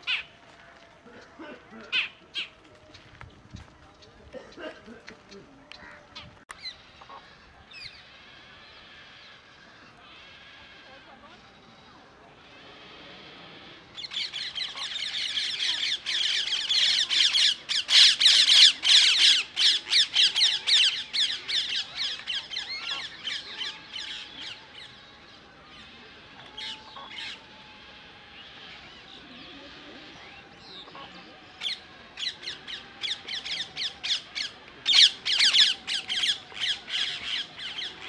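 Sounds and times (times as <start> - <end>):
wetland birds squawking: 14.0 - 25.0, 25.7 - 38.0.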